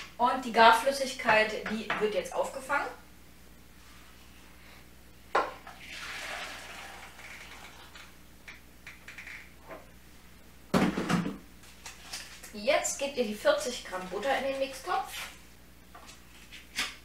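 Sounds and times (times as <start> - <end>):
liquid pouring and splashing: 5.7 - 8.1.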